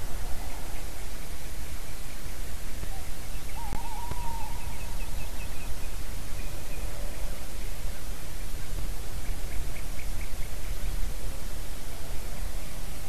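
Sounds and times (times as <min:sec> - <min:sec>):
steady hiss: 0:00.0 - 0:13.0
owl hooting: 0:02.8 - 0:05.6.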